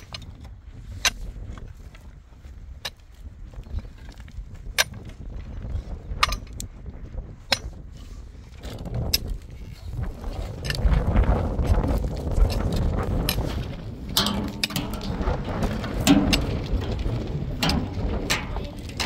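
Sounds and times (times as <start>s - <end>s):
pickaxe striking stony ground: 4.6s - 5.0s, 12.4s - 19.0s.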